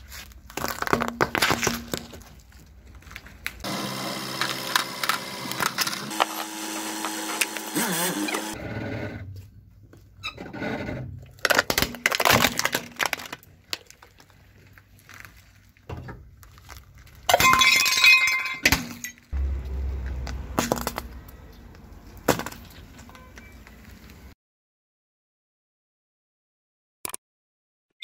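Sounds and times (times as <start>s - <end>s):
loud crunch: 0.0s - 8.6s, 18.6s - 24.2s
plastic toy cracking under tyre: 0.3s - 3.6s, 11.2s - 15.6s.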